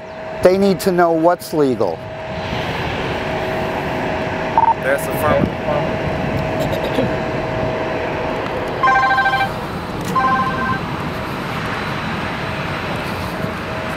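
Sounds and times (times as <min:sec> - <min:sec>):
steady outdoor rumble: 0:00.0 - 0:13.9
trilling electronic rings: 0:08.8 - 0:10.9.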